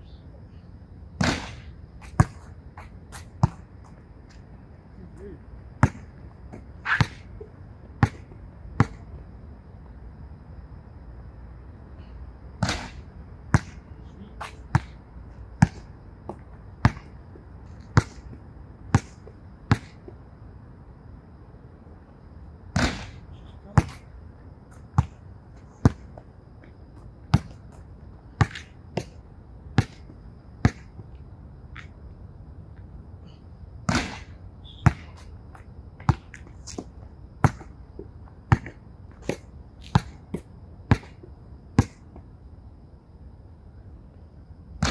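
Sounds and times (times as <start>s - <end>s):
basketball bouncing on hard court: 5.8s - 7.3s, 23.8s - 24.0s, 34.8s - 35.2s, 38.5s - 41.2s.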